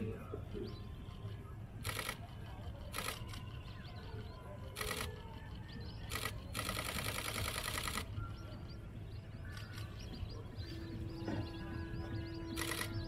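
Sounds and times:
small birds chirping: 0.0s - 13.0s
camera shutter bursts: 1.8s - 3.6s, 4.7s - 5.4s, 6.0s - 8.2s, 12.5s - 13.0s.

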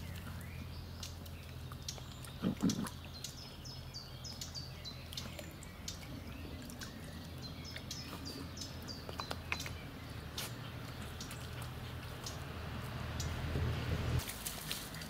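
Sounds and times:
bird chirping: 0.0s - 14.0s.

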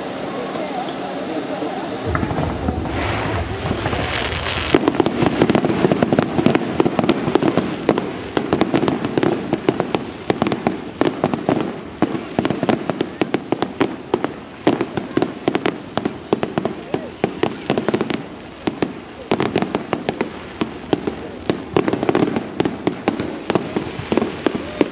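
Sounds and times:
firework crackling pops: 0.0s - 24.9s
firework hiss: 0.0s - 24.9s
low rumble: 2.0s - 5.2s.

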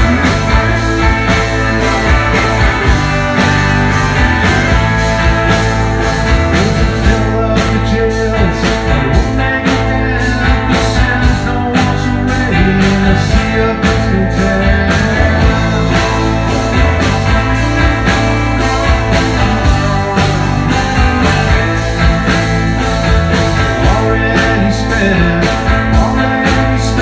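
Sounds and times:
drum kit beat: 0.0s - 27.0s
electric bass: 0.0s - 27.0s
electric guitars: 0.0s - 27.0s.

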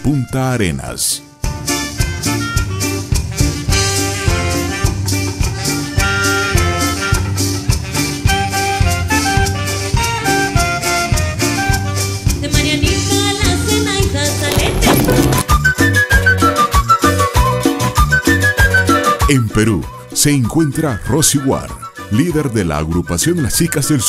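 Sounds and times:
bass: 0.0s - 24.0s.

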